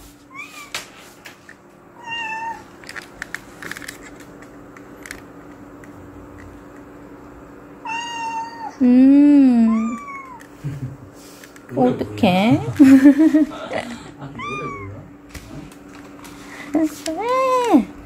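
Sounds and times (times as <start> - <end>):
faint steady hum: 0.0 - 18.0
cat meowing: 2.0 - 2.6, 7.8 - 8.8, 9.7 - 10.4, 14.4 - 15.1.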